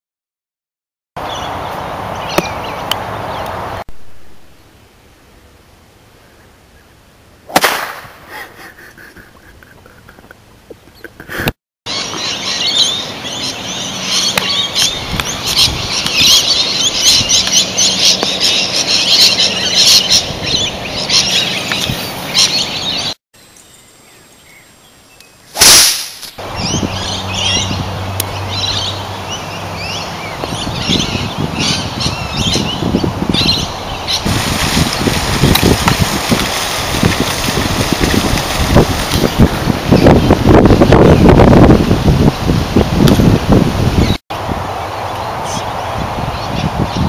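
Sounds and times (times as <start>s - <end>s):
birds chirping and calling: 1.2s - 3.6s, 11.9s - 25.5s, 26.4s - 36.0s, 44.9s - 47.0s
golf club hitting sand shot: 7.5s - 8.3s, 25.5s - 26.4s.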